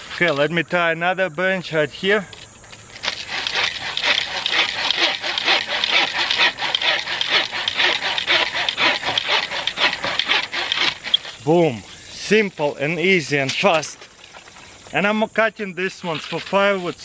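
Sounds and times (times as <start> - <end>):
hand saw cutting wood: 3.0 - 11.6.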